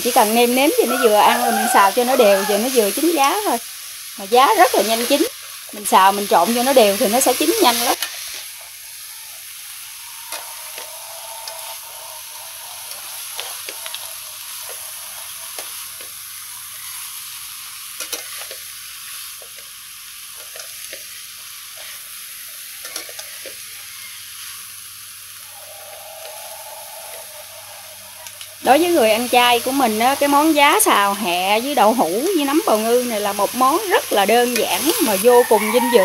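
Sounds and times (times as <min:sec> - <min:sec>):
food sizzling in a wok: 0:00.0 - 0:36.0
spatula scraping a pan: 0:10.2 - 0:16.2, 0:25.5 - 0:28.7.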